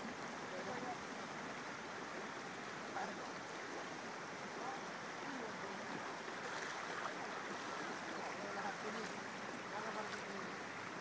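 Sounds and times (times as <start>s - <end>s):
river flowing over stones: 0.0s - 11.0s.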